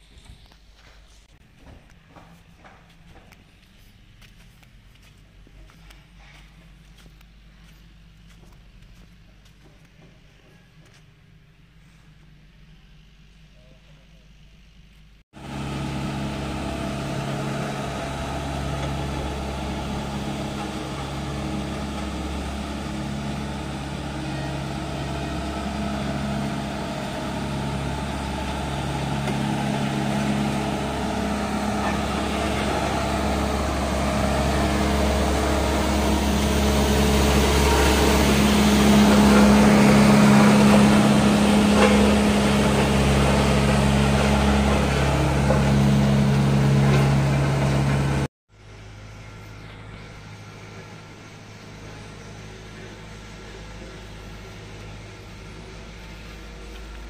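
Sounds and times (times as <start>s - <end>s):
road roller diesel engine: 15.4s - 57.0s.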